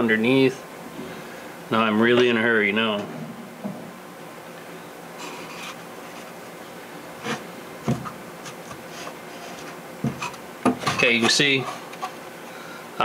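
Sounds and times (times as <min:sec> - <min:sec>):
soft knocks: 0:03.0 - 0:04.0
scraping and rubbing on wood: 0:05.2 - 0:06.4, 0:07.2 - 0:12.2.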